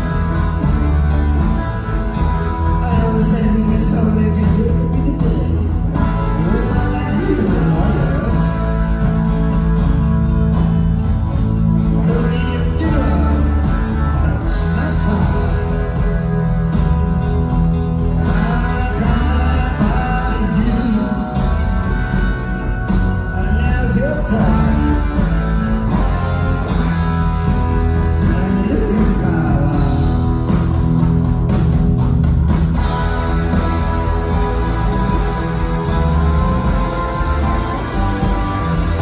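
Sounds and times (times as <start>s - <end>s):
live blues-rock band playing: 0.0s - 39.0s
person singing: 2.7s - 8.6s, 12.0s - 16.3s, 18.2s - 21.8s, 23.3s - 25.2s, 28.2s - 30.4s.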